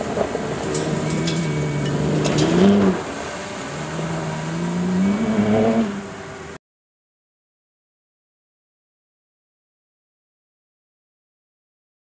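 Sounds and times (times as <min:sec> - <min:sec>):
gravel ticks: 0:00.0 - 0:03.0
engine revving hard: 0:00.4 - 0:06.6.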